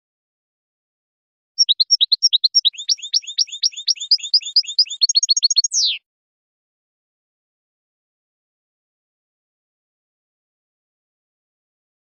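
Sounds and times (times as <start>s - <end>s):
bird twittering song: 1.6s - 6.0s.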